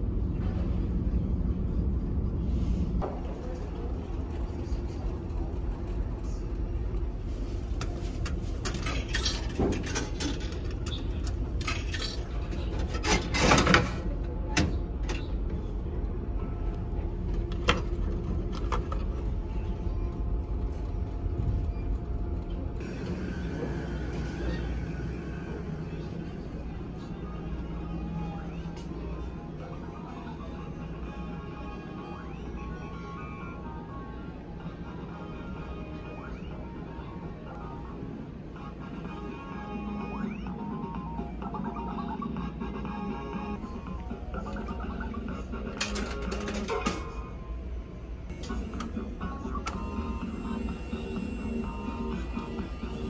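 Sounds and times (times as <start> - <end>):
low engine drone: 0.0 - 53.0
coins clinking: 45.8 - 47.0.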